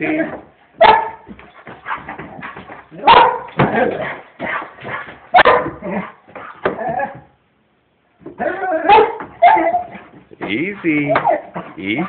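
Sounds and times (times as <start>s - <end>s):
dog barking: 0.8s - 6.2s, 8.8s - 10.0s.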